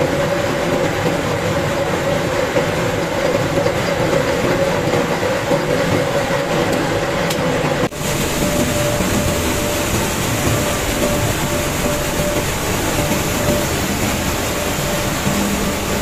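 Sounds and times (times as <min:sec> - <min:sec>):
roller mill grinding: 0:07.9 - 0:16.0.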